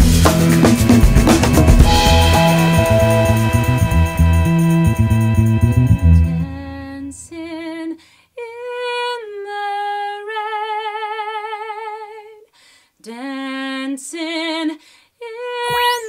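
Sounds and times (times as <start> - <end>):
woman singing a cappella: 6.4 - 16.0.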